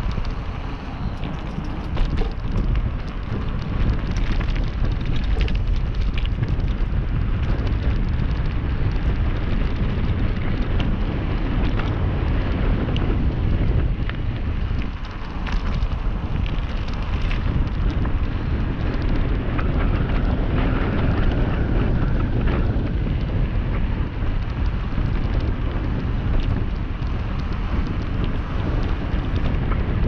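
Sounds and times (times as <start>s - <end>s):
tyres rolling over gravel: 0.0s - 23.4s, 24.0s - 30.0s
wind buffeting microphone: 0.0s - 30.0s
clicks and knocks from stones: 1.1s - 7.8s.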